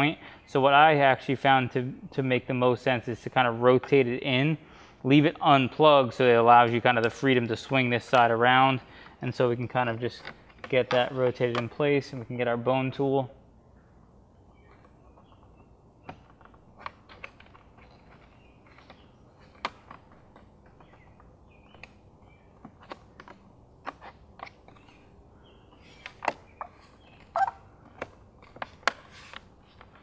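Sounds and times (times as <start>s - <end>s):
small plastic clicks and creaks: 10.1s - 11.8s, 14.6s - 25.0s, 25.7s - 30.0s
brief plastic squeak: 26.0s - 28.1s.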